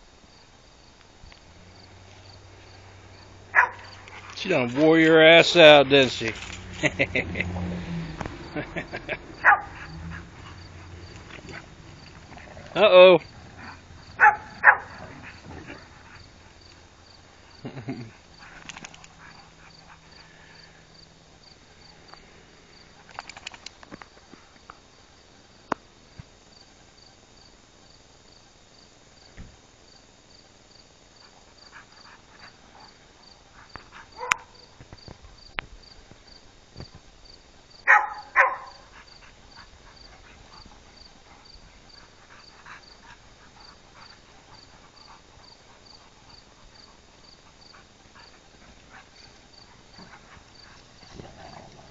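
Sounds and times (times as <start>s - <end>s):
crickets chirping: 0.0s - 51.9s.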